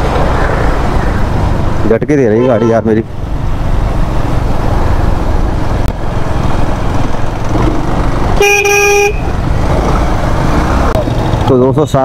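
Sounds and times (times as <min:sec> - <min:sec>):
motorcycle road rumble: 0:00.0 - 0:12.0
vehicle horn honk: 0:02.4 - 0:02.9, 0:08.4 - 0:09.3.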